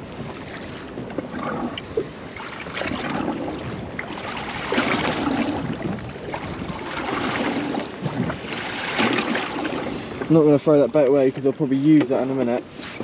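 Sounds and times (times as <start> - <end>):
water slapping against boat hull: 0.0 - 13.0
wind: 0.0 - 13.0.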